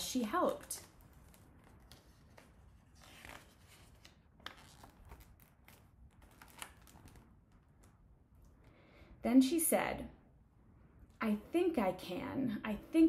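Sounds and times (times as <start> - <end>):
paper rustling: 0.0 - 8.0.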